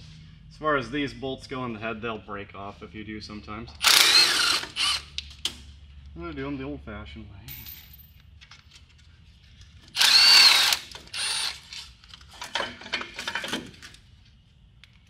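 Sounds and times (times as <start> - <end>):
power tool whirring: 3.8 - 5.2, 9.9 - 11.9.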